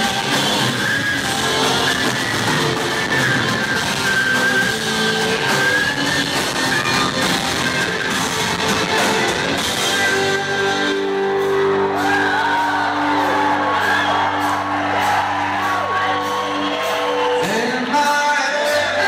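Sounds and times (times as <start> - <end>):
crowd whooping and shouting: 0.0 - 19.0
live rock band: 0.0 - 19.0.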